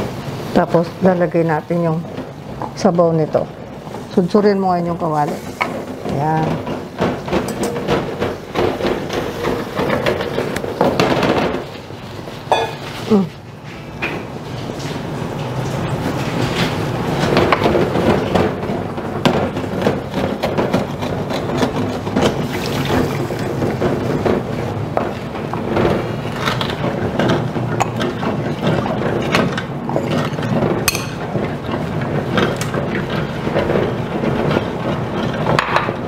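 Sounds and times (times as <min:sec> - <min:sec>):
liquid sizzling and bubbling: 0:00.0 - 0:36.0
wooden spoon scraping a pan: 0:03.8 - 0:11.6.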